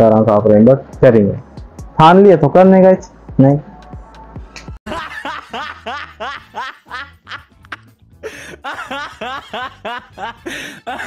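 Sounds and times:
man's squeaky laugh: 0:05.0 - 0:11.0.

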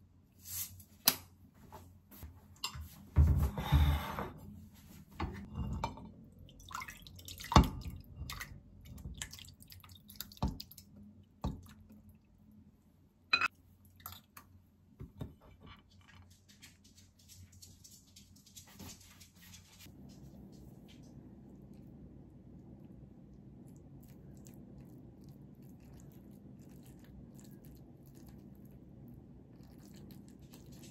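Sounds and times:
soup pouring and dripping: 0:06.1 - 0:12.4, 0:21.0 - 0:30.9
dishes clinking on stone: 0:13.3 - 0:13.5.

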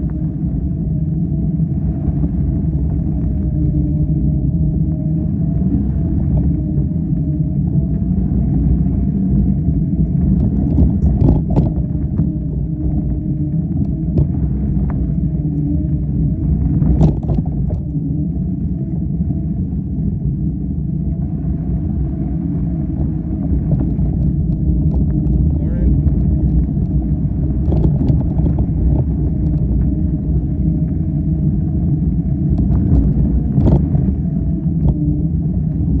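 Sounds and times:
faint steady whine: 0:00.0 - 0:36.0
low rumble of ride: 0:00.0 - 0:36.0
wind on microphone: 0:00.0 - 0:36.0.

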